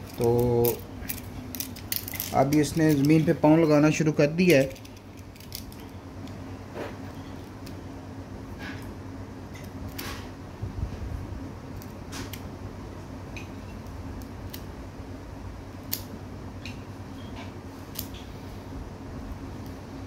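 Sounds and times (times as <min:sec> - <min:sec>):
low steady hum: 0:00.0 - 0:20.0
small scissors snipping tape: 0:13.8 - 0:14.7, 0:15.8 - 0:16.1, 0:17.9 - 0:18.2.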